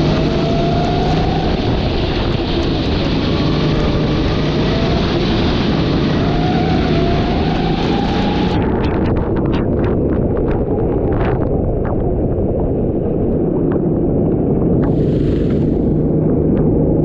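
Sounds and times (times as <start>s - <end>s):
kart engine running: 0.0s - 9.8s, 14.6s - 17.0s
wind rumble on microphone: 0.0s - 17.0s.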